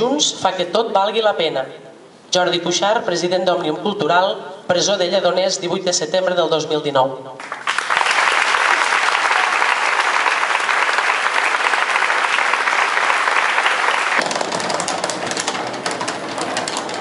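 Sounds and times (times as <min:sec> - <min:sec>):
crowd applauding: 0:07.4 - 0:15.6.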